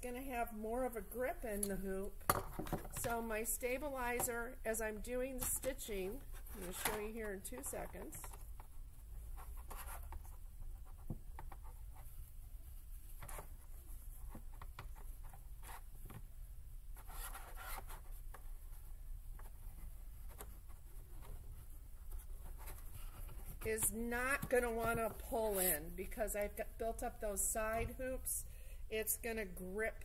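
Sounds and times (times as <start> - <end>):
stabilizer rustling and scratching: 5.9 - 25.8.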